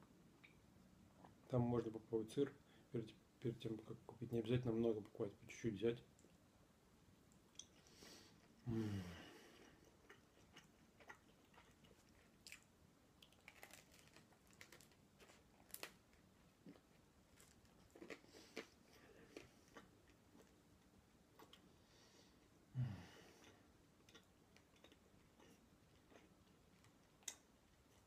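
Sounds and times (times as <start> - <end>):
person chewing crusty bread: 9.5 - 22.5, 23.3 - 28.0.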